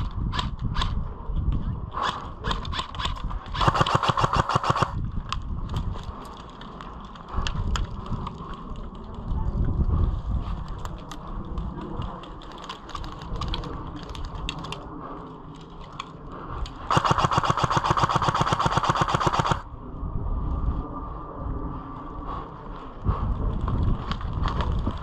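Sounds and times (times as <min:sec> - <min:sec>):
sharp clicks: 0:02.0 - 0:08.4, 0:15.6 - 0:19.6
airsoft gun full-auto burst: 0:03.5 - 0:05.0, 0:16.9 - 0:19.6.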